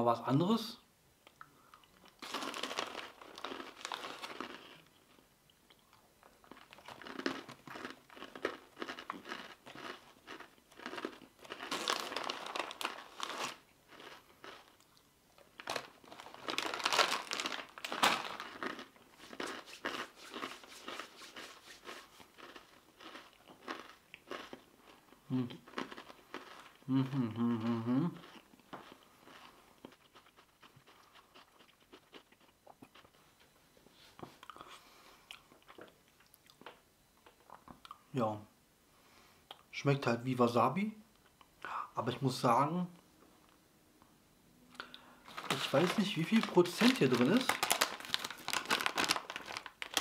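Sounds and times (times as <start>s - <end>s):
rice crackers crunching: 2.0s - 5.2s, 5.8s - 26.8s, 28.2s - 33.2s, 44.8s - 50.0s
person humming mm: 25.3s - 25.6s, 26.8s - 28.2s.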